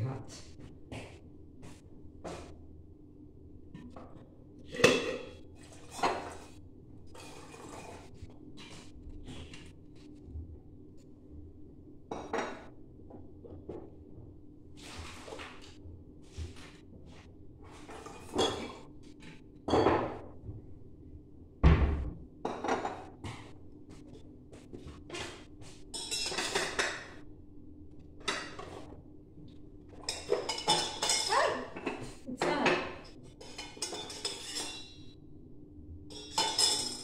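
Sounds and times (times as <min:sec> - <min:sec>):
glass bottles and utensils clinking: 0:30.1 - 0:32.0, 0:36.1 - 0:37.0.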